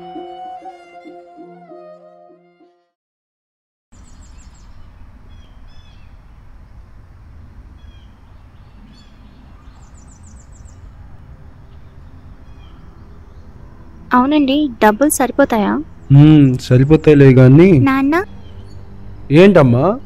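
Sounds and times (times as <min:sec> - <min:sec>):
string music: 0:00.0 - 0:02.9
small birds chirping: 0:04.0 - 0:06.4, 0:07.4 - 0:13.6, 0:15.5 - 0:20.0
low steady rumble: 0:04.0 - 0:20.0.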